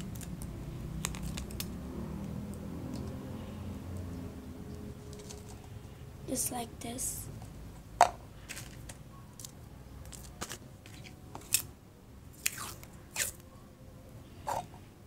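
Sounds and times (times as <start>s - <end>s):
tape and plastic cup crinkling: 8.4s - 11.7s.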